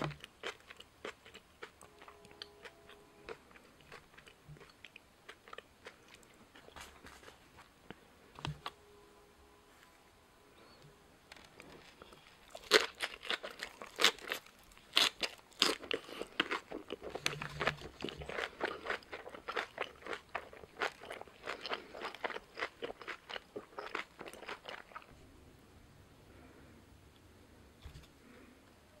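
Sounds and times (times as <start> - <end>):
crunching and chewing food: 0.0 - 8.8, 11.3 - 25.2.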